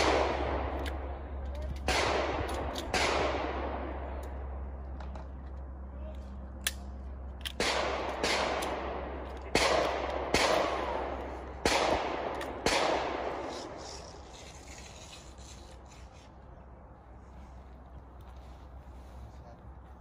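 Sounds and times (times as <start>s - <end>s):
pistol gunshots with echo: 0.0s - 1.2s, 1.8s - 4.2s, 7.5s - 13.4s.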